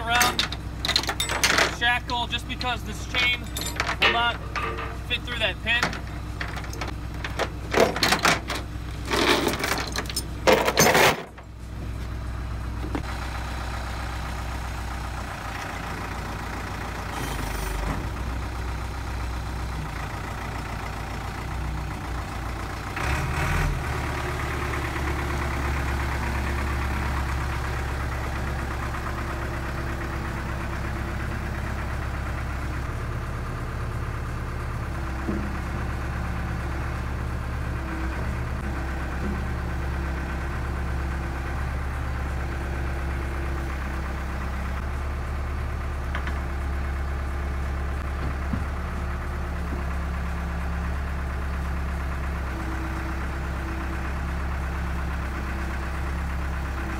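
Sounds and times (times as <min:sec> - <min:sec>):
diesel engine running: 0:00.0 - 0:56.9.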